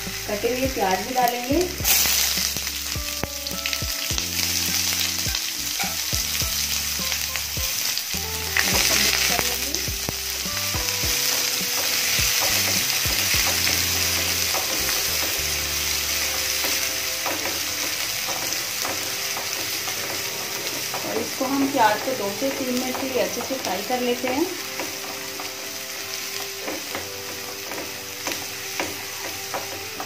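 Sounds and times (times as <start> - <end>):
onions sizzling in oil: 0.0 - 30.0
spatula scraping a pan: 10.8 - 30.0.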